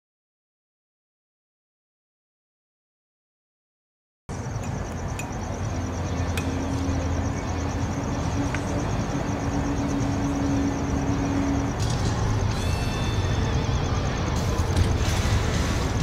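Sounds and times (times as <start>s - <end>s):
outdoor background noise: 4.3s - 16.0s.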